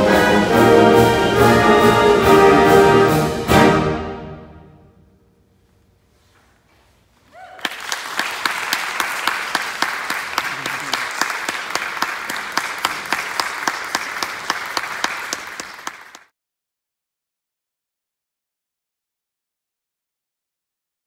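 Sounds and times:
audience applauding: 0:07.4 - 0:16.3.

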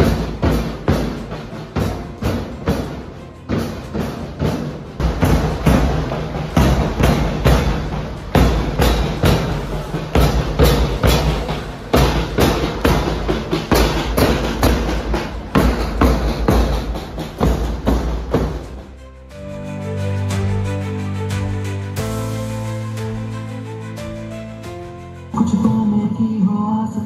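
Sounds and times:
deep bass drum: 0:00.0 - 0:18.9
marching drums beating: 0:00.0 - 0:19.5
marching band playing: 0:00.0 - 0:24.9.

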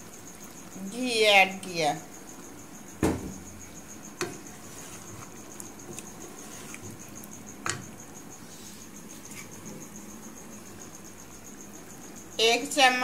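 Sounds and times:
wooden spatula knocking on pot: 0:04.2 - 0:04.5
spatula scraping pot: 0:04.2 - 0:07.9.

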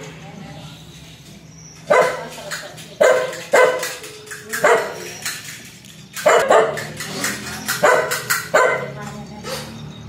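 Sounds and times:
dog barking aggressively: 0:01.8 - 0:02.4, 0:03.0 - 0:05.2, 0:06.2 - 0:09.0.

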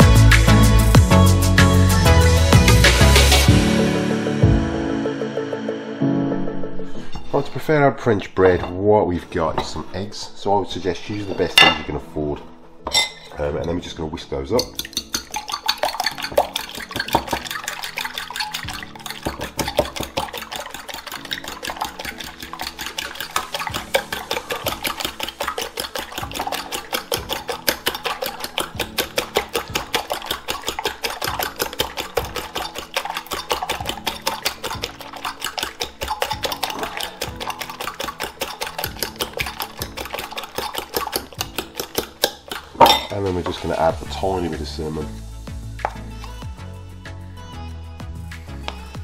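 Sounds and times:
fork whisking eggs in bowl: 0:14.5 - 0:44.8.

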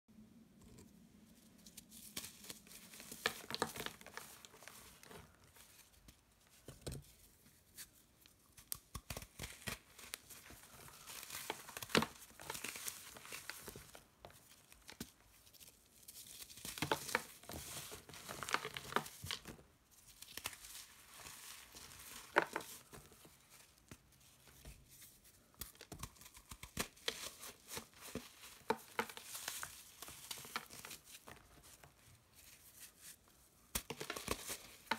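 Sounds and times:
hands crushing chalk: 0:01.8 - 0:05.4, 0:07.8 - 0:15.2, 0:23.8 - 0:34.9.

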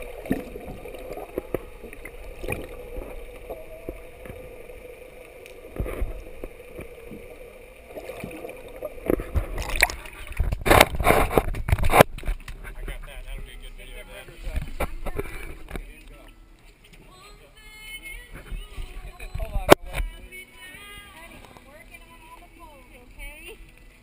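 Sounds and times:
muffled underwater noise: 0:00.0 - 0:16.4, 0:17.7 - 0:24.0
water splashing and sloshing: 0:00.0 - 0:17.1, 0:18.1 - 0:24.0
faint steady hum: 0:00.0 - 0:24.0
knocks underwater: 0:05.6 - 0:07.3, 0:08.0 - 0:13.5.

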